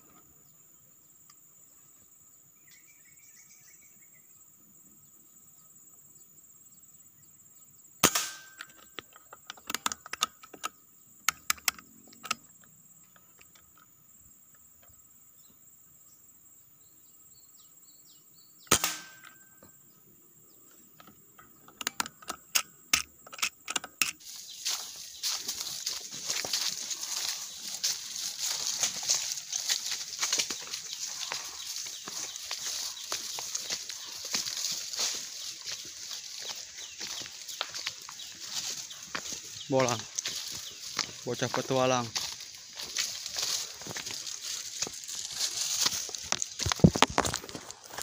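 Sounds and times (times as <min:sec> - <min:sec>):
air rifle shot crack: 0:08.0 - 0:08.5, 0:18.7 - 0:19.3.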